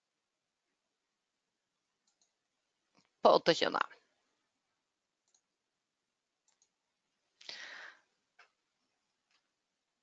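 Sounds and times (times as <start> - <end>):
computer mouse clicks: 2.0 - 3.1, 5.2 - 5.5, 6.4 - 6.8.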